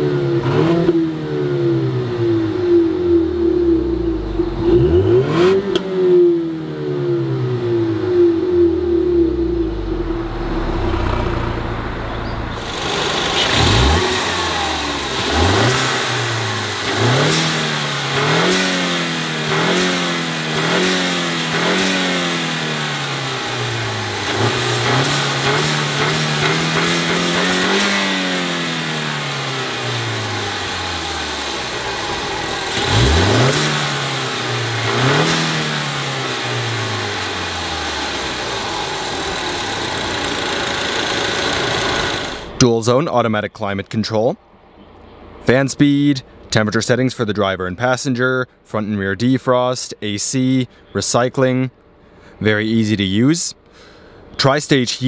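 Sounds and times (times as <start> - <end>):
car engine idling: 0.0 - 42.6
car engine revving: 0.0 - 42.6.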